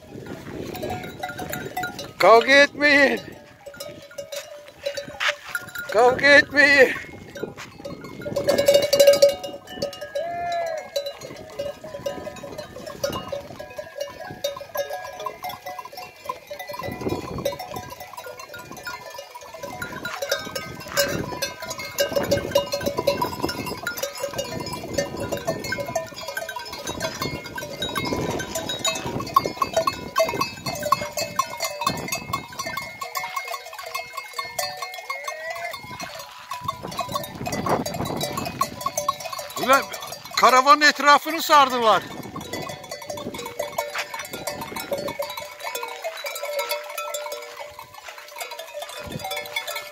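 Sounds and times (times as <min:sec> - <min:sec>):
goat bells clinking and jangling: 0:00.0 - 0:49.9
goats bleating: 0:10.0 - 0:12.8, 0:35.1 - 0:36.2.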